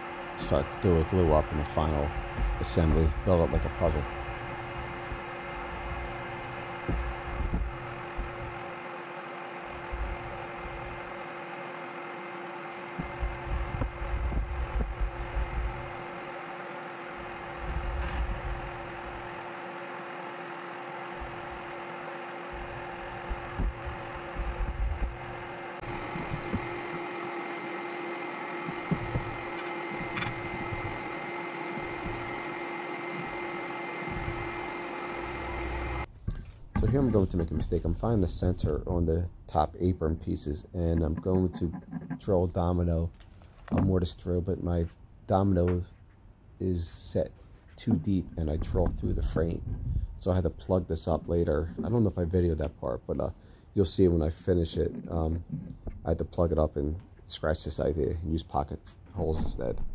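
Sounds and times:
steady machine hum: 0.0 - 45.8.

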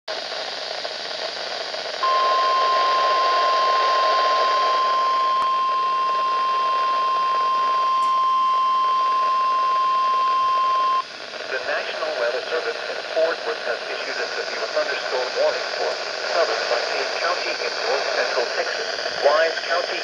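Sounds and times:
radio speaker hissing: 0.1 - 20.0
high-pitched alarm tone: 2.0 - 11.0.

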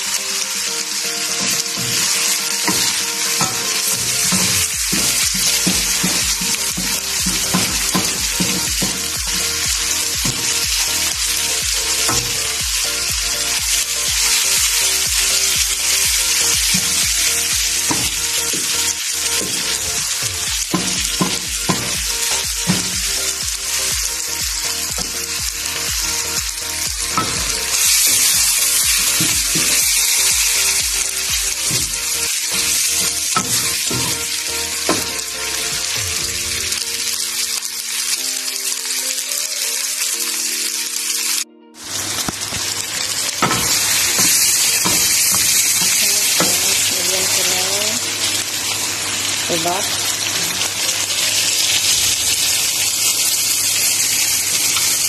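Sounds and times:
chicken sizzling in oil: 0.0 - 55.0
wooden spatula scraping wok: 1.2 - 12.6, 13.4 - 23.8, 27.1 - 37.2.

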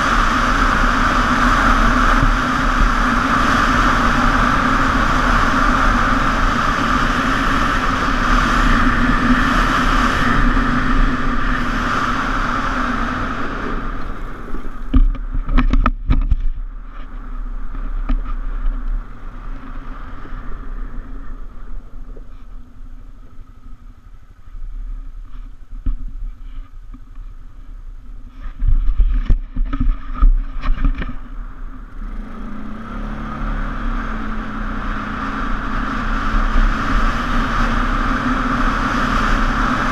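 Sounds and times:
quad bike engine running: 0.0 - 27.7, 28.3 - 39.9
knocks and rattles over rocks: 14.8 - 19.0, 28.4 - 31.4.

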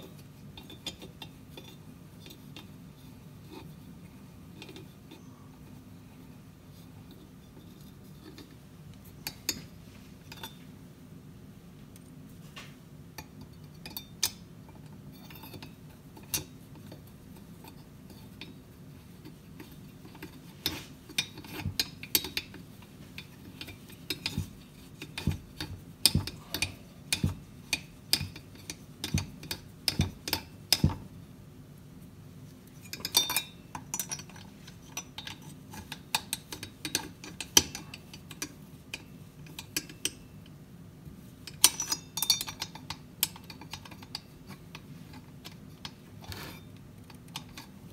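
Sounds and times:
low steady hum: 0.0 - 47.9
metal clicks of screws and tool: 23.2 - 31.0, 32.8 - 40.2, 41.5 - 47.7.

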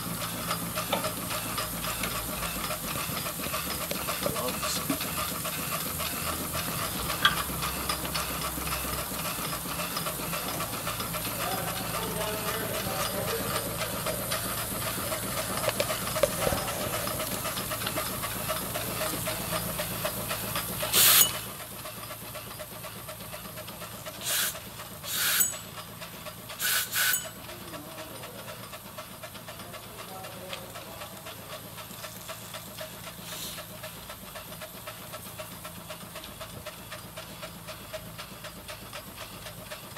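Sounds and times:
steam hissing: 0.0 - 27.4, 28.0 - 39.9
steam engine running: 0.0 - 39.9
blast of escaping steam: 20.8 - 21.4, 24.2 - 25.4, 26.6 - 27.2.

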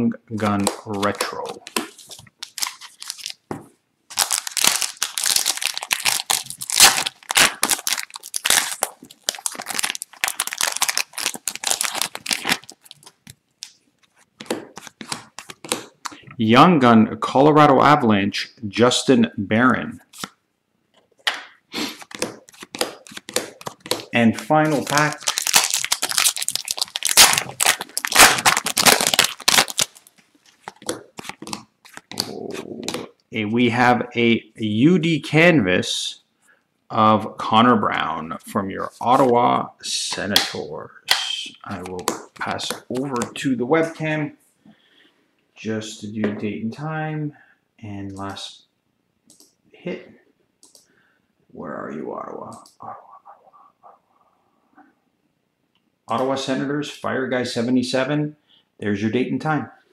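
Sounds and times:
foil wrapper tearing and crinkling: 0.5 - 3.4, 4.1 - 13.7, 22.0 - 32.3.

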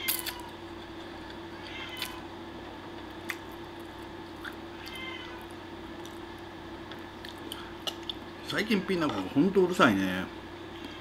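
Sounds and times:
steady low hum: 0.0 - 11.0
cat meowing: 1.6 - 2.3, 4.7 - 5.5.

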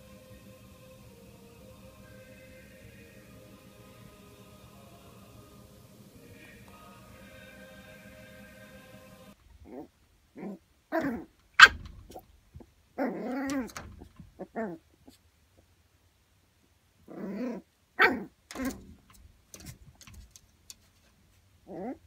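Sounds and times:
puppy barking and growling: 9.6 - 12.2, 13.0 - 14.8, 17.1 - 18.8, 21.7 - 22.0.

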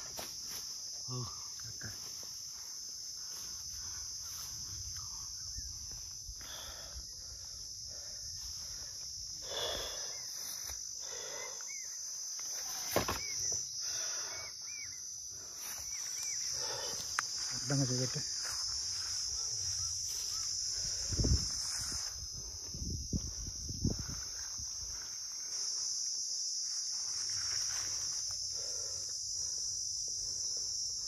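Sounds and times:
insects chirring: 0.0 - 31.0.

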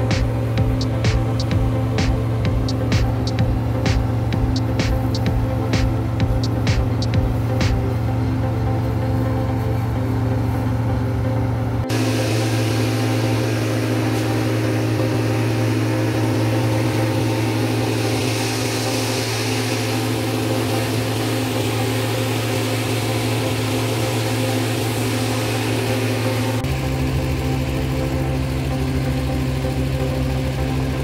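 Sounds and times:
diesel truck engine idling: 0.0 - 31.0
water hose spraying: 11.9 - 26.7.

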